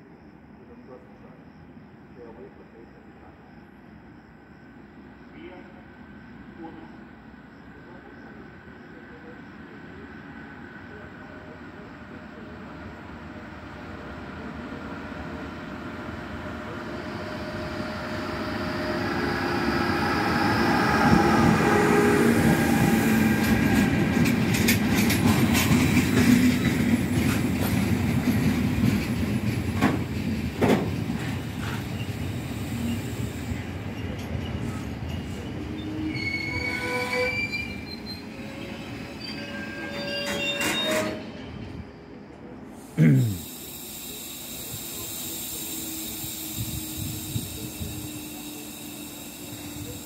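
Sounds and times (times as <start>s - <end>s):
freight train rumbling past: 5.0s - 50.0s
sharp clacks over rails: 23.8s - 31.8s
metallic wheel squeal: 34.0s - 41.3s.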